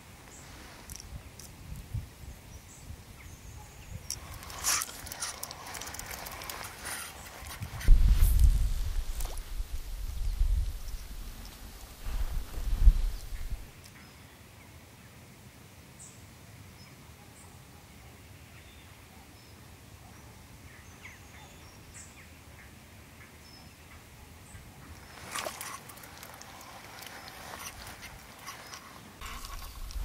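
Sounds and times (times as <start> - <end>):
fishing reel clicking: 4.1 - 7.6
rustling: 4.1 - 13.8, 24.9 - 30.0
water splashing: 24.9 - 30.0.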